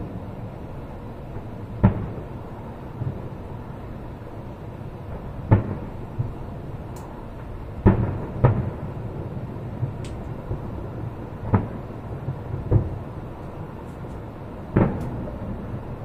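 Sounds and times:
distant firework booms: 0:01.8 - 0:02.4, 0:05.1 - 0:06.5, 0:07.4 - 0:13.3, 0:14.7 - 0:15.9.

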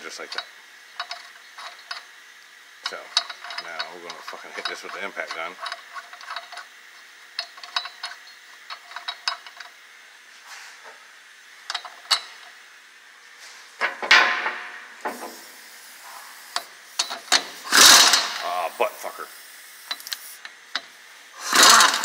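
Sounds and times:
compressed air hiss: 0:15.0 - 0:20.5.

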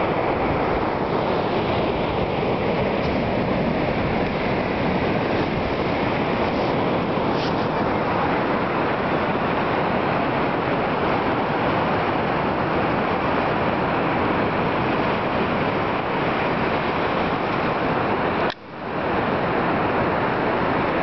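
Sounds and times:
ocean surf rushing: 0:00.0 - 0:21.0
wind noise: 0:00.0 - 0:21.0.

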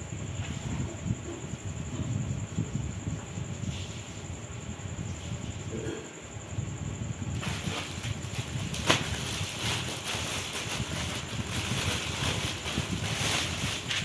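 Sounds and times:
plastic packaging crinkling: 0:07.3 - 0:14.0.

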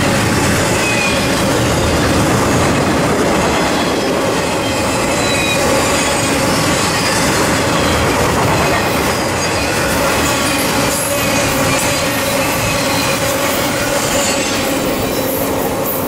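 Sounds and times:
train wheels rumbling on rails: 0:00.0 - 0:16.0
high wheel squeals: 0:03.6 - 0:08.3, 0:09.1 - 0:16.0.

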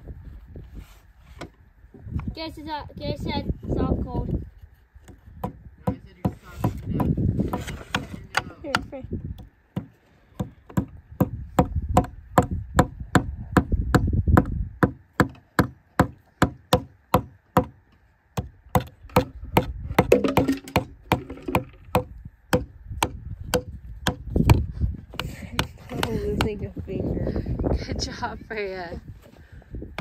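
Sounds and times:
hammer tapping nails into wood: 0:05.0 - 0:13.7, 0:18.4 - 0:26.6.

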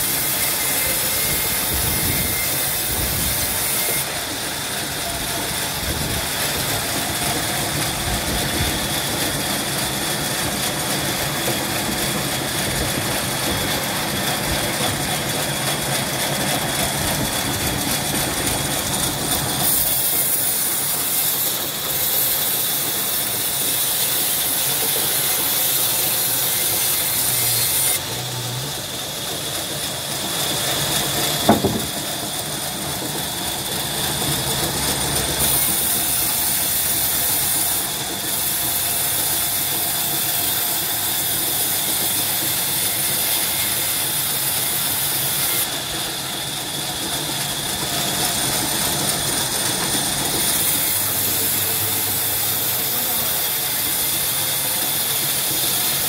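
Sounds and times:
band saw cutting log: 0:00.0 - 0:56.0
sharp knock: 0:31.5 - 0:32.0.

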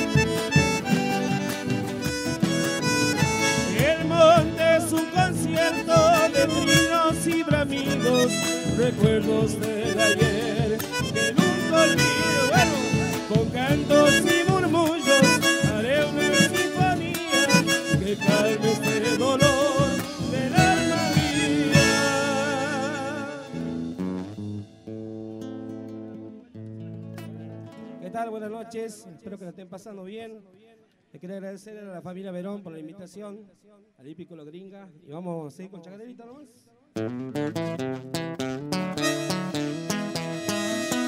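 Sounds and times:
wavering lead melody: 0:00.0 - 0:24.8, 0:37.5 - 0:41.0
drums: 0:00.0 - 0:25.0
acoustic guitars: 0:00.0 - 0:28.2, 0:37.0 - 0:41.0.

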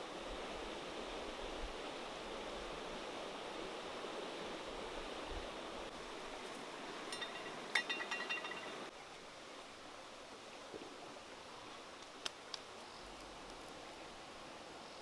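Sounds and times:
river flowing: 0:00.0 - 0:12.0
utensils clinking: 0:07.1 - 0:08.9.

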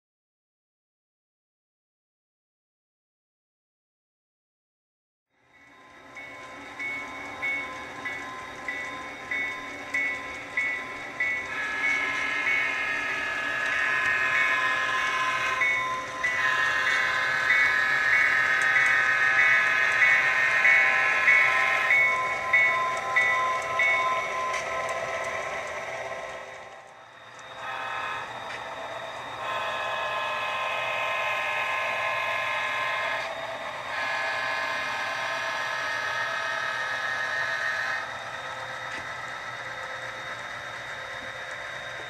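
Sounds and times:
locomotive bell ringing: 0:05.5 - 0:38.0
locomotive horn blasts: 0:16.3 - 0:17.4, 0:27.6 - 0:28.3, 0:29.4 - 0:33.2.

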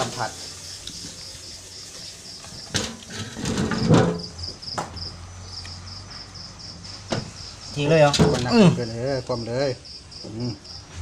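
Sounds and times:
insect chirping: 0:00.0 - 0:11.0
clattering scrape on steel tray: 0:02.0 - 0:04.4.

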